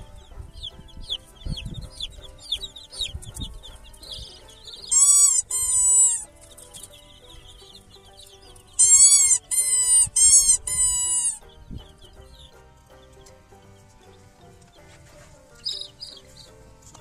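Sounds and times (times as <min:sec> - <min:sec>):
background music: 0:00.0 - 0:17.0
faint high peeping: 0:00.0 - 0:17.0
loud drawn-out animal calls: 0:04.9 - 0:06.3, 0:08.8 - 0:11.4.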